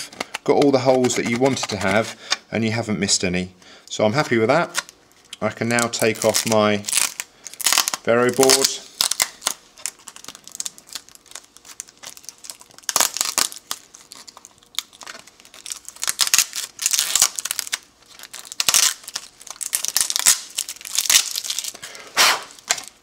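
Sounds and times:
sticky tape peeling and crackling: 5.7 - 23.0.

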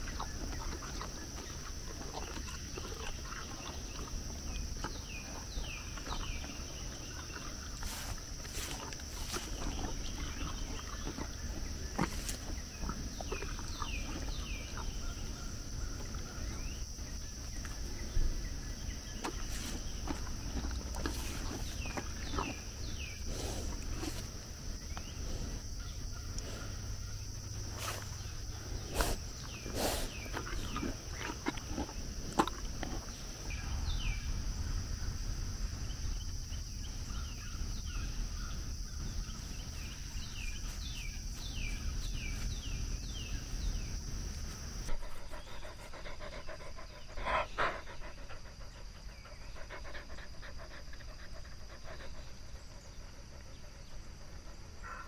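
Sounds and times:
dog panting: 44.9 - 55.0.

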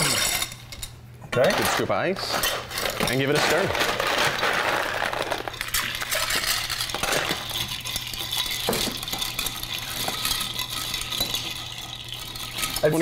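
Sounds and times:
ice clinking in glass: 5.3 - 13.0.

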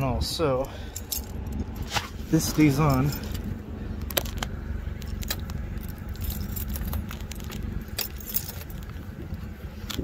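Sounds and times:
low steady rumble: 0.0 - 10.0
jingling: 2.4 - 3.6, 4.9 - 9.1.

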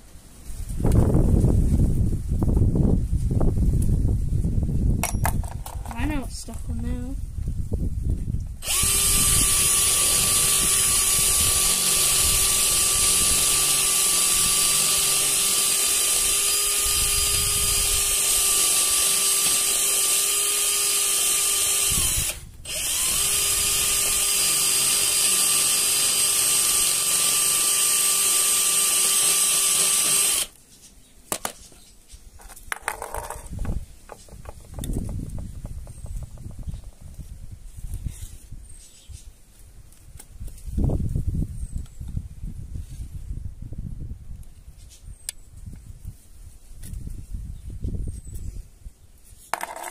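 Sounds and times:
electric drill running: 8.6 - 30.6.

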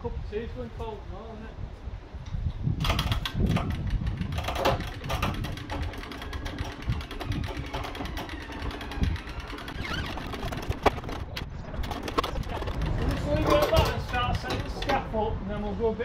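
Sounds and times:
winches clicking rapidly: 2.8 - 15.0.

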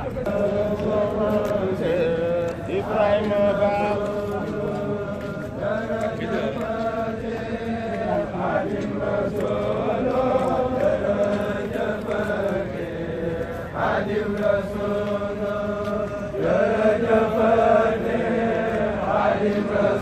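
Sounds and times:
men chanting together: 0.2 - 20.0.

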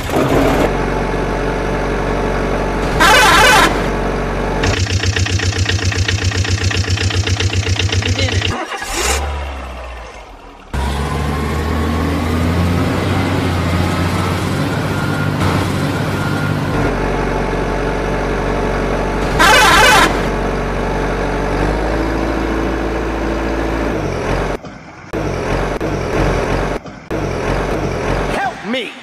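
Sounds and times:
truck engine running: 0.0 - 28.5
loud engine burst: 2.8 - 4.0, 4.6 - 14.8, 19.2 - 20.4.

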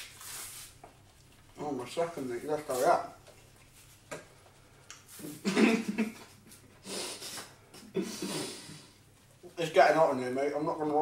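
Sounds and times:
banana peel tearing: 0.0 - 0.8
muffled chewing: 0.9 - 1.6.

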